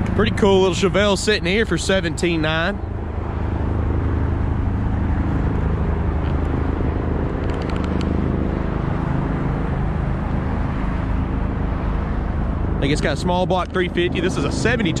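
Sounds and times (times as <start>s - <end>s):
engine humming: 0.0s - 15.0s
quick ticks: 7.4s - 8.2s.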